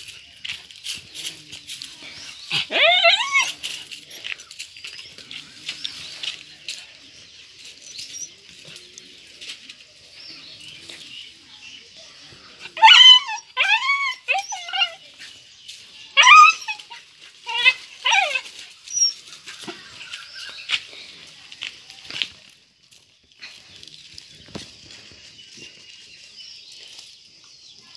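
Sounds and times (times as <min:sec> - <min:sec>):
dog whining: 0:02.5 - 0:03.6, 0:12.7 - 0:15.0, 0:16.2 - 0:19.2.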